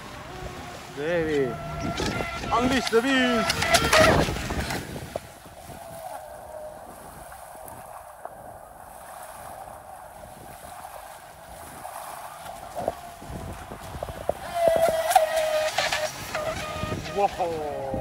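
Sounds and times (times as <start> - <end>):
electric motor whine: 0.0 - 4.7
water noise: 0.0 - 18.0
wind noise: 0.0 - 18.0.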